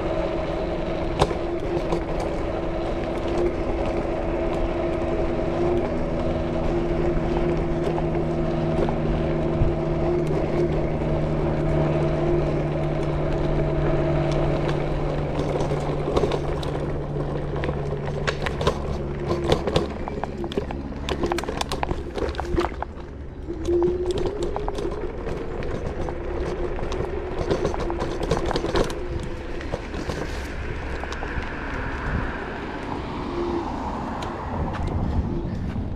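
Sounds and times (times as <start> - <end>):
wheels clattering over paving stones: 0.0 - 32.2
electric scooter motor whine: 0.0 - 35.9
tyres rumbling: 0.0 - 35.9
wind: 0.0 - 35.9.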